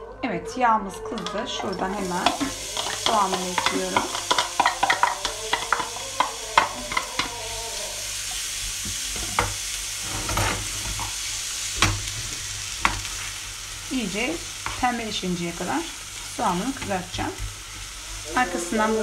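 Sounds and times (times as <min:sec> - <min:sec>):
spoon knocking on pan: 0:01.2 - 0:07.4, 0:08.8 - 0:09.6
wooden spoon tapping and scraping: 0:01.2 - 0:07.4
onion sizzling in hot oil: 0:01.2 - 0:19.0.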